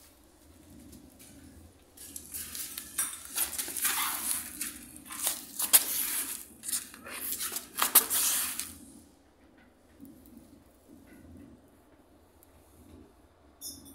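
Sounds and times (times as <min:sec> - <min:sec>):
water splashing on tiled floor: 0:02.3 - 0:08.7.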